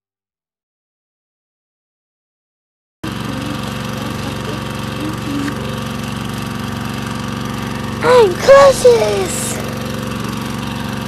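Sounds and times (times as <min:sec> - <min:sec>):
pile driver engine running: 0:03.0 - 0:11.0.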